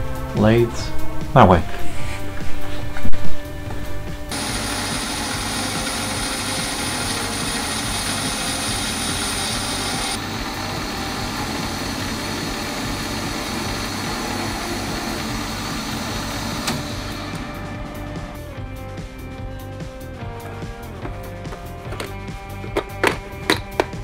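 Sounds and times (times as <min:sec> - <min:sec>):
metal lathe running: 0:04.3 - 0:18.0.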